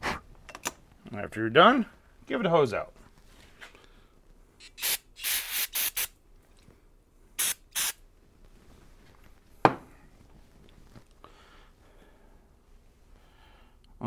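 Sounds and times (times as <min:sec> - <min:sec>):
aerosol spray hissing bursts: 0:04.6 - 0:06.2, 0:07.4 - 0:08.0.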